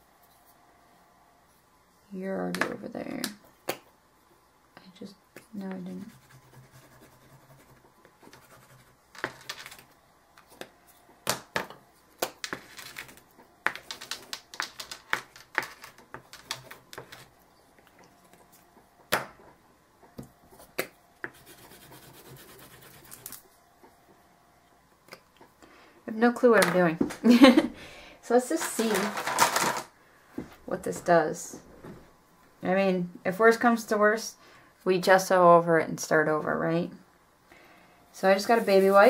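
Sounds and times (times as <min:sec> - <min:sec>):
crayon scribbling on board: 0:05.9 - 0:09.0, 0:21.2 - 0:23.3.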